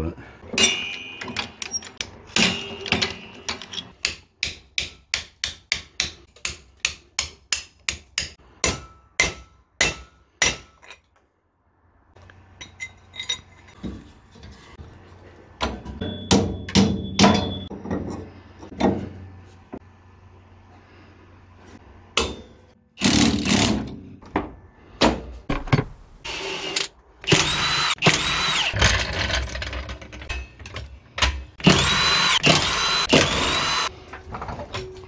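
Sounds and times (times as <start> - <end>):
hammer striking metal bracket: 0.6 - 1.7, 16.0 - 17.8.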